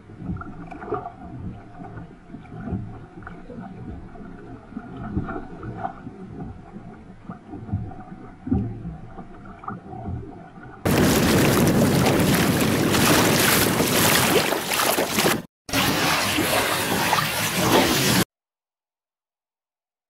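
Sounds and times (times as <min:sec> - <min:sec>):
water lapping against hull: 0:00.0 - 0:18.3
wind and water rushing: 0:10.9 - 0:18.2.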